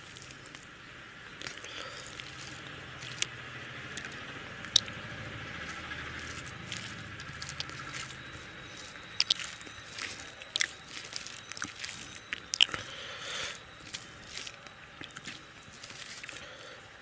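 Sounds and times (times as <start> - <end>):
fingers squishing food on plate: 5.6 - 12.9.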